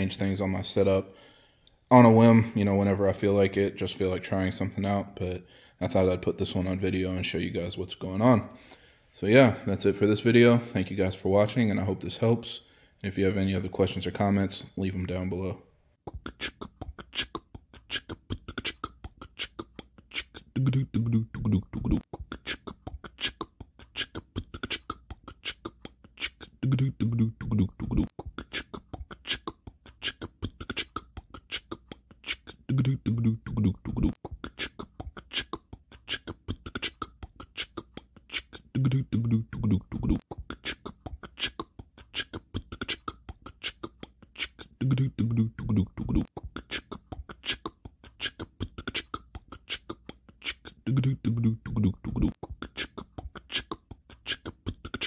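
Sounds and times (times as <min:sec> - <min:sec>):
beatbox vocal percussion clicks: 0:16.0 - 0:55.0.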